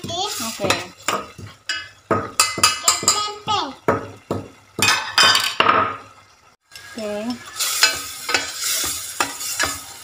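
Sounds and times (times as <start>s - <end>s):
spice paste sizzling: 0.0s - 5.0s, 6.0s - 10.0s
metal ladle scraping steel pot: 7.5s - 10.0s.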